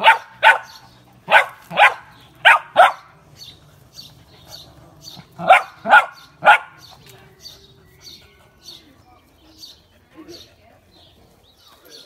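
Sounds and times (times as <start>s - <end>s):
puppy barking: 0.0s - 3.2s, 5.3s - 6.9s.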